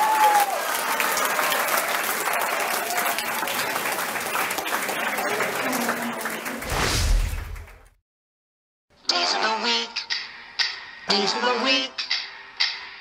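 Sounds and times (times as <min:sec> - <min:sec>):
crowd applauding: 0:00.0 - 0:07.9.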